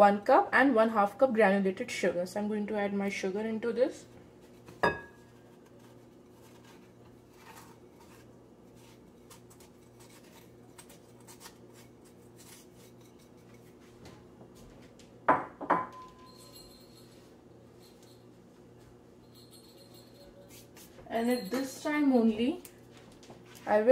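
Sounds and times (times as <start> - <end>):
sugar scraping and tapping: 4.6 - 14.2
sharp glass clinks: 15.9 - 17.3.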